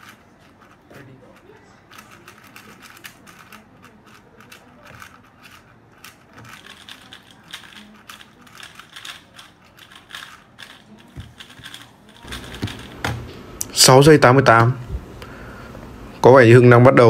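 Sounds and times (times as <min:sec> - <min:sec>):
speed cube clicking: 0:00.0 - 0:13.1.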